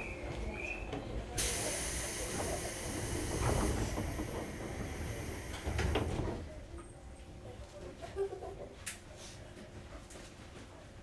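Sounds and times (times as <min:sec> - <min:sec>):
electric train rumbling: 0:00.0 - 0:06.8
compressed air hiss: 0:01.4 - 0:05.7.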